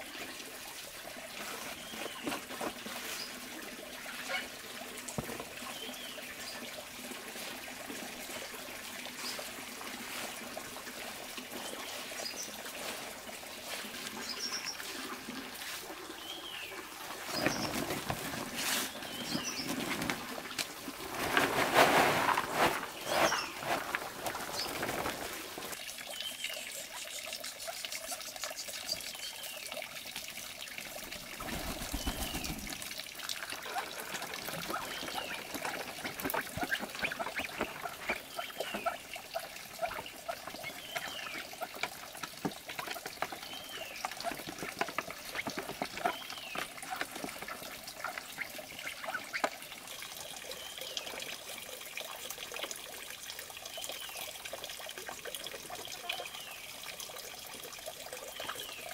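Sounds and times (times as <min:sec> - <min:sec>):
ducks pecking grain: 0:09.2 - 0:25.8, 0:31.0 - 0:49.8
grain pouring into plastic basin: 0:19.8 - 0:25.8.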